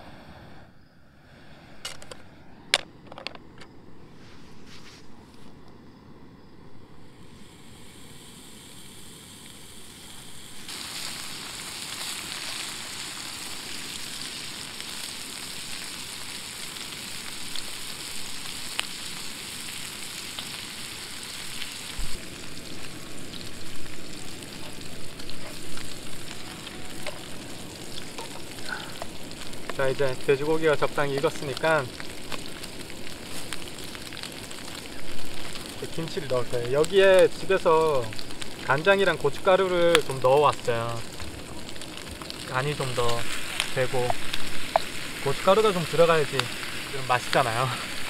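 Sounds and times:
pork sizzling in a pot: 0:07.2 - 0:48.0
crackling pops: 0:10.6 - 0:48.0.

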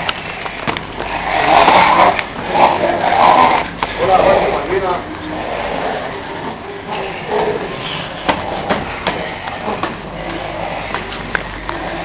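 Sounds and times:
sharp knocks: 0:08.2 - 0:09.2.

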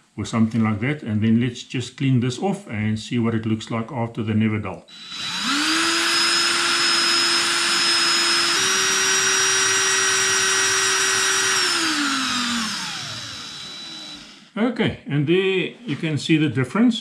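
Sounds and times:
cordless drill motor whine: 0:04.9 - 0:14.5.

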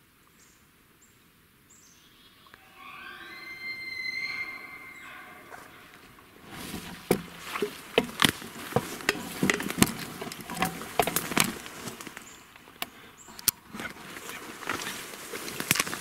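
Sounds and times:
leaves crackling: 0:02.4 - 0:16.0
footsteps through dry brush: 0:04.3 - 0:16.0
twigs snapping: 0:06.6 - 0:16.0.

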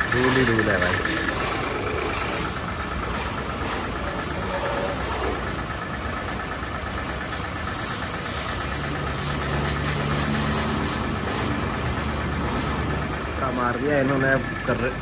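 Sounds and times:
water spray hissing: 0:00.0 - 0:04.3, 0:07.3 - 0:13.0
pressure washer motor hum: 0:00.0 - 0:15.0.

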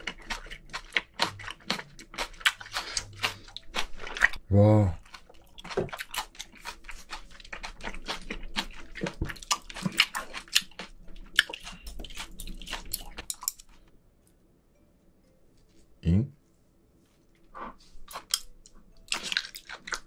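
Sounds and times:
wet crunchy chewing: 0:00.0 - 0:04.4, 0:05.0 - 0:13.9, 0:17.6 - 0:20.0.

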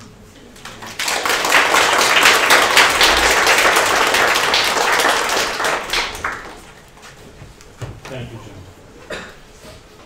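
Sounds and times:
audience applause: 0:00.6 - 0:06.8.

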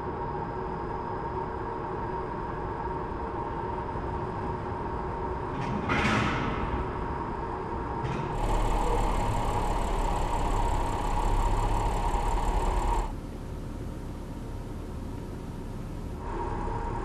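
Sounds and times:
steady hum: 0:06.8 - 0:17.0
car engine and tyres driving slowly: 0:08.3 - 0:17.0.

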